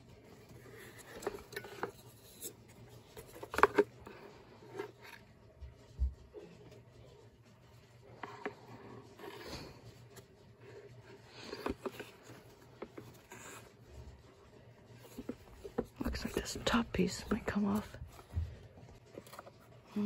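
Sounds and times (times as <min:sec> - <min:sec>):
plastic housing clicks and scrapes: 0:00.5 - 0:05.2, 0:11.0 - 0:13.7.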